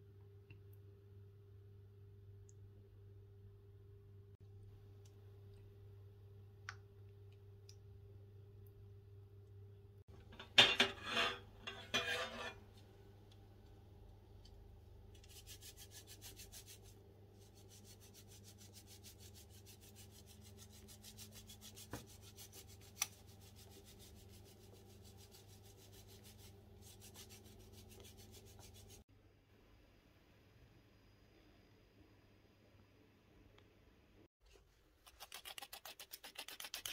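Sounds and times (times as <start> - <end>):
faint steady hum: 0.0 - 35.0
rubbing scrapes: 10.9 - 12.6, 15.2 - 29.0.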